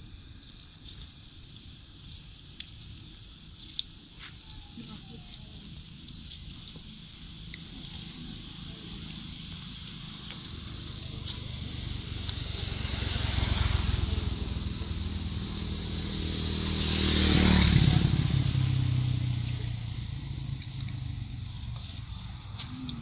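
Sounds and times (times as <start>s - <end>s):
vehicles driving past: 7.7s - 23.0s.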